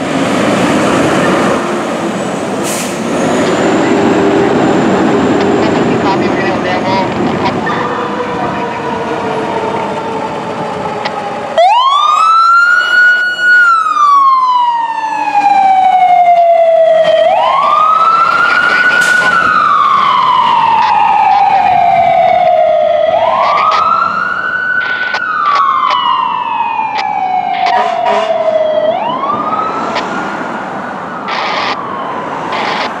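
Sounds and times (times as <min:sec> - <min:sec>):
vehicle engine: 0:00.0 - 0:11.6
fire engine siren wailing: 0:00.0 - 0:33.0.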